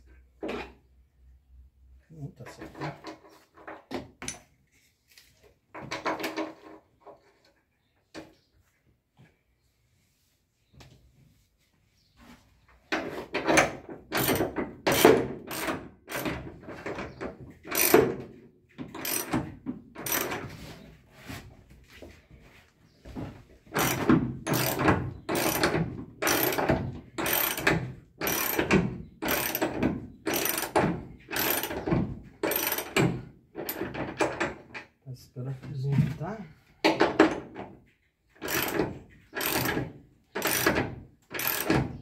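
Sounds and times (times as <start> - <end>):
ratchet wrench clicking: 27.2 - 28.6, 29.2 - 29.6, 41.3 - 41.7.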